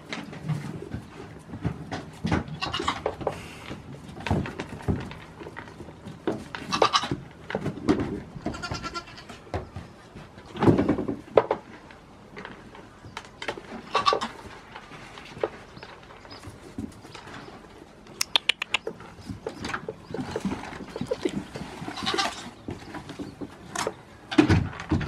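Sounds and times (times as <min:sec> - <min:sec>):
young goats bleating: 0:08.4 - 0:09.4, 0:19.8 - 0:22.5.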